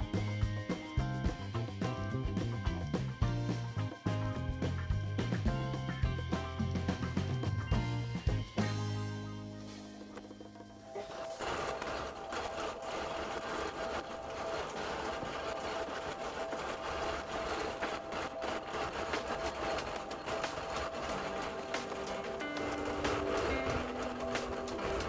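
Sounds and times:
quilting machine motor whine: 10.9 - 25.0
fast needle clatter: 11.0 - 25.0.

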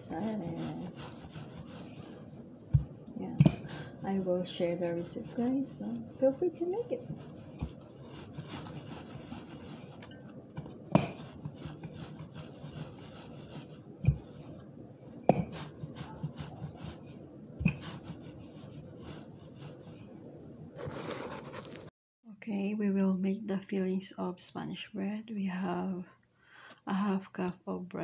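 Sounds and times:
rolling pin rubbing on dough: 0.0 - 14.6, 15.2 - 20.1.

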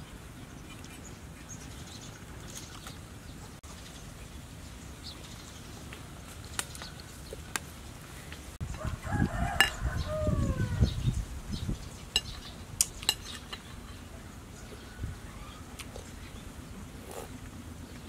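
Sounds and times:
rooster crowing: 8.8 - 10.9.

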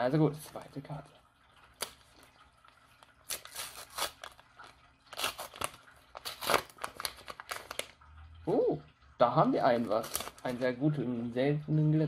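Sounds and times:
crinkly wrapper tearing and crumpling: 3.2 - 8.0, 9.7 - 10.6.

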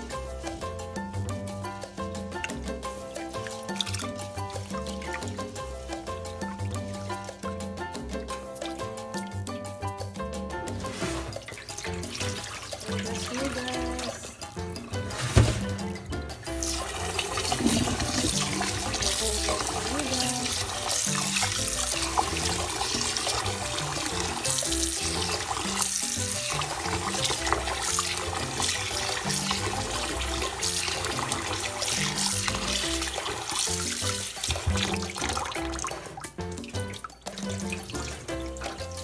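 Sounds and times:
background music: 0.0 - 39.0
tap water running into steel bowl: 1.6 - 10.0, 10.6 - 39.0
rice swished by hand: 10.7 - 12.8.

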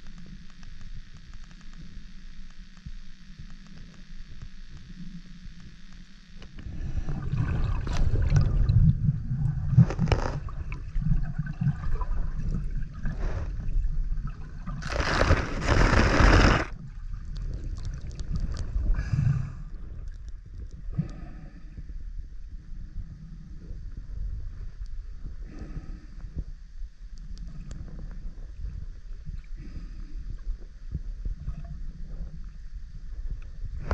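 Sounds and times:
muffled water sloshing and gurgling: 6.4 - 33.9
rush of water: 14.8 - 16.7.

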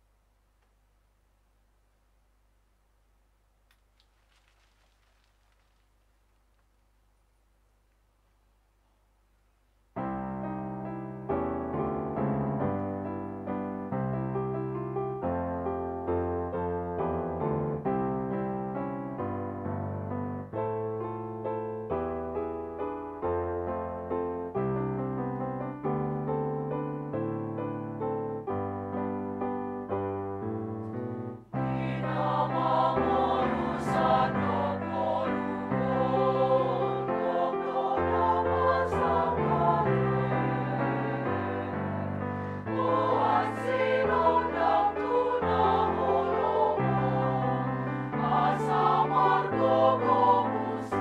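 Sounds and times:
piano chords: 10.0 - 51.0
women's choir singing: 31.6 - 51.0.

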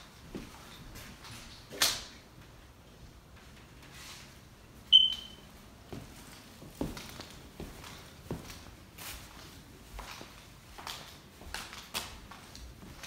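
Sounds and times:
high-pitched chirp: 4.9 - 5.4.

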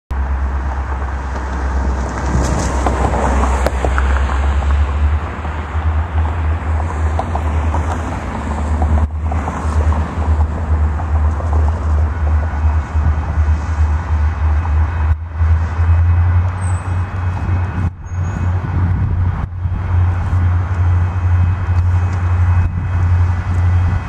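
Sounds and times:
distant freight train: 0.1 - 24.0
wind buffeting microphone: 0.9 - 24.0.

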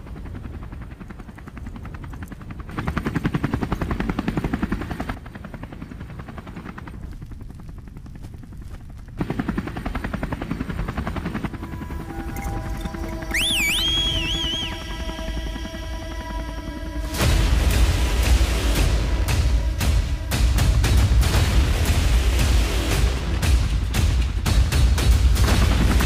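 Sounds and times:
helicopter rotor chopping: 0.0 - 26.0
high wavering tone: 11.6 - 17.0.

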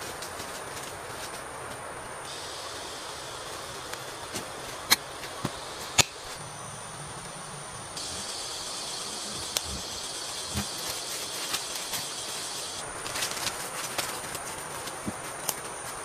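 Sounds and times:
insect chorus: 0.0 - 16.0
footsteps in leaf litter: 8.0 - 16.0.

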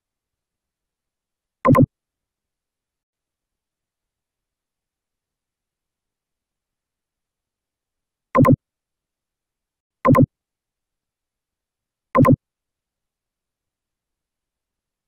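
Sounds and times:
electronic blip: 1.7 - 1.9, 8.4 - 8.6, 10.1 - 10.3, 12.2 - 12.4.

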